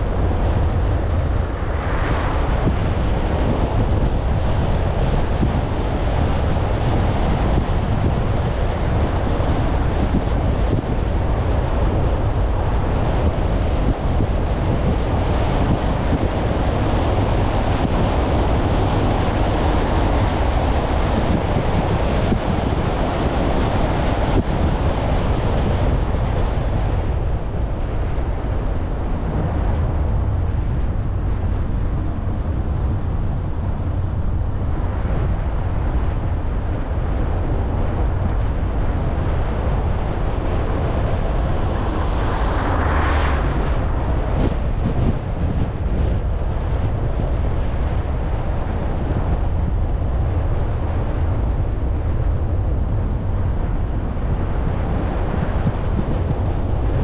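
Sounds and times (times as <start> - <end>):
wind buffeting microphone: 0.0 - 57.0
car driving rumble: 23.0 - 57.0.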